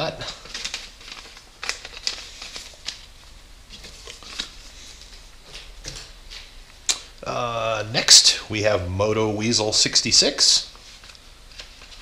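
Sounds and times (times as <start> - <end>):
paper rustling: 0.0 - 6.5, 10.2 - 12.0.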